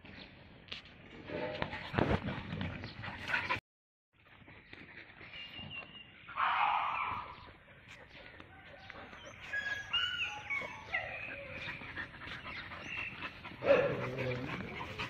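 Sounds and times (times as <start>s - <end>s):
dogs whining and yipping: 8.9s - 15.0s
dogs vocalising: 9.0s - 15.0s.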